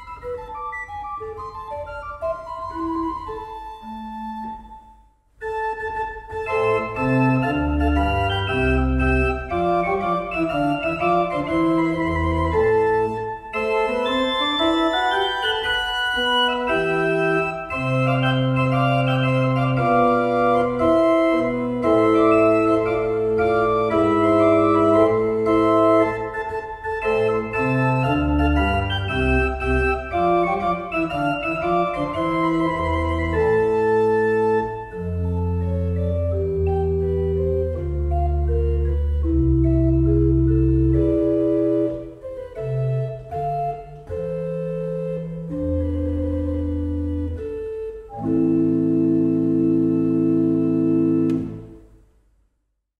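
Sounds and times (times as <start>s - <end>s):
organ music: 0.0s - 52.0s.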